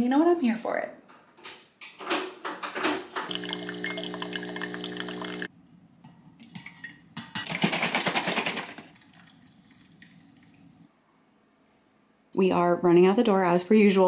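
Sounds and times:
kitchen appliance humming: 3.3 - 5.5
liquid pouring into mug: 3.3 - 5.5, 8.9 - 10.7.

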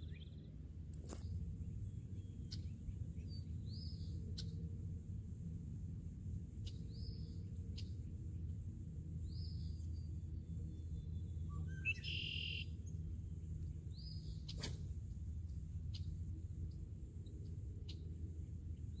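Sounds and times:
small bird chirping: 0.0 - 4.7, 9.2 - 13.0, 13.6 - 14.9, 15.5 - 18.1
low outdoor rumble: 0.0 - 19.0.

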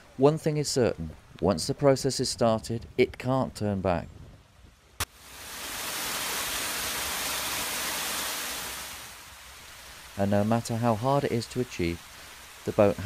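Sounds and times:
water rushing and splashing: 5.0 - 13.0.

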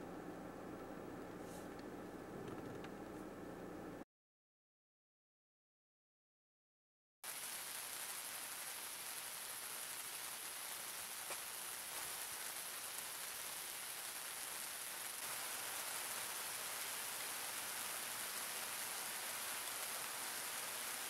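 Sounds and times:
rain falling: 7.2 - 21.0.

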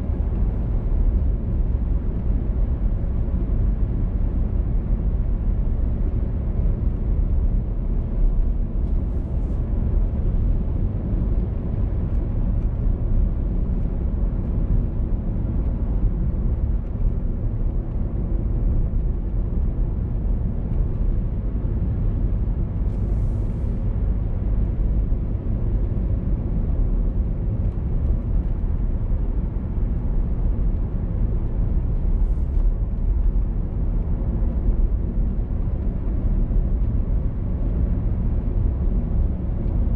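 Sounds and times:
road and tyre rumble: 0.0 - 39.9.

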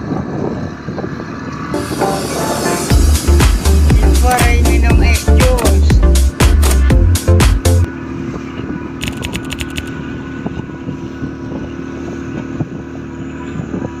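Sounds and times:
speedboat engine running: 0.0 - 14.0
dance music with heavy bass: 1.8 - 7.9, 9.0 - 9.9
sharp clicks: 9.0 - 10.0.

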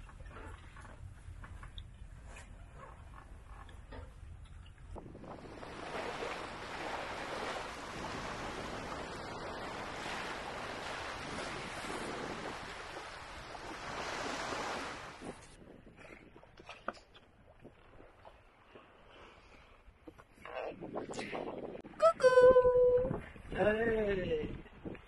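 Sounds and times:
water splashing along hull: 0.0 - 21.1
wind blowing over microphone: 4.8 - 16.7, 20.4 - 25.0.

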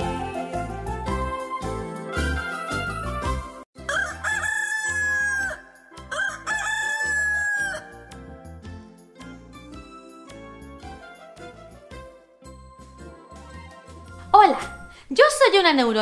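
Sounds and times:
rooster crowing: 3.8 - 8.0
soft tinkling music: 12.5 - 15.0.

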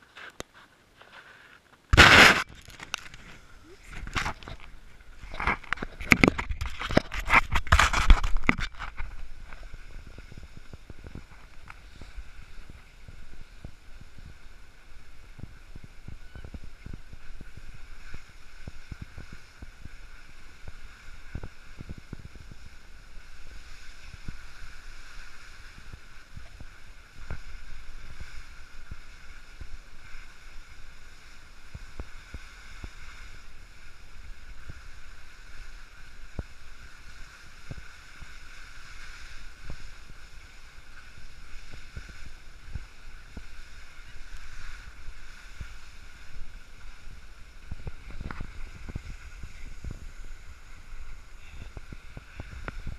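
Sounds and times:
small scrapes and clicks: 0.0 - 12.7, 47.8 - 50.1
skis sliding over snow: 0.0 - 52.9
wind buffeting microphone: 3.5 - 24.4, 41.1 - 52.9.

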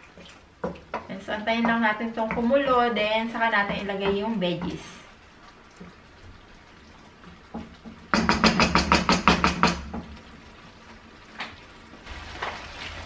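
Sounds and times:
sharp knocks: 7.5 - 10.1.

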